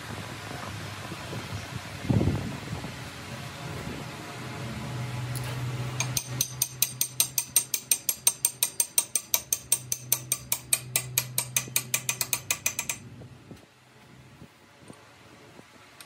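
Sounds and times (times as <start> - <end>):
steady low hum: 0.0 - 16.0
rapid metallic clicking: 6.0 - 13.0.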